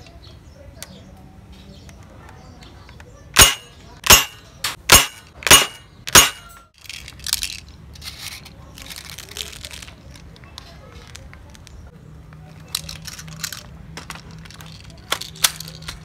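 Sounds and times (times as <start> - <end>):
airsoft rifle shots: 3.4 - 6.6.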